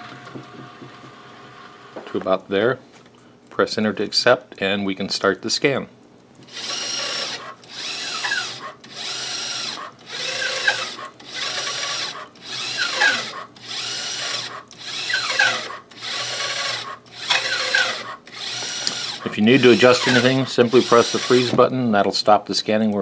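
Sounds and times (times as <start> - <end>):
scanner motor whirring: 6.5 - 21.6.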